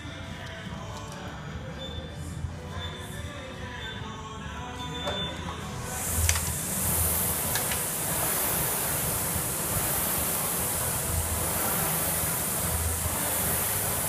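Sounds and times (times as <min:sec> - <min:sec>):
rowing machine flywheel whoosh: 0:05.6 - 0:14.0.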